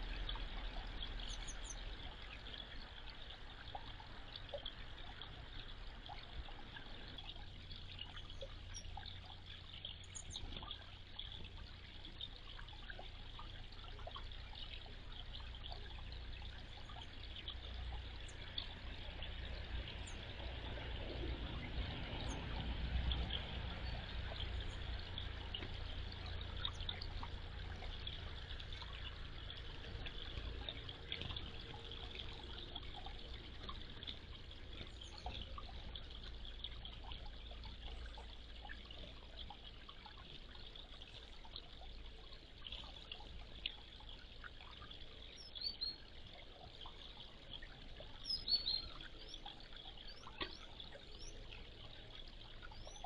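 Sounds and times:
low steady hum: 0:00.0 - 0:53.0
water trickling into pond: 0:00.0 - 0:53.0.

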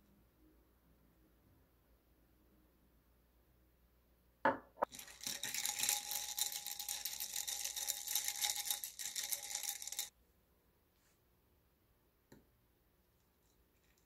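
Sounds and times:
cup set down with a knock: 0:04.5 - 0:04.7
ice cubes clinking in a glass: 0:04.8 - 0:10.1.

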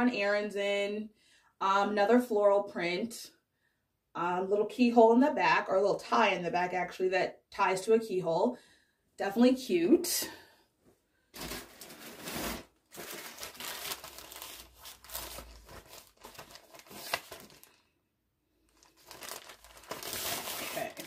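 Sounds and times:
packaging crinkling and rustling: 0:11.4 - 0:17.9, 0:18.7 - 0:21.0.

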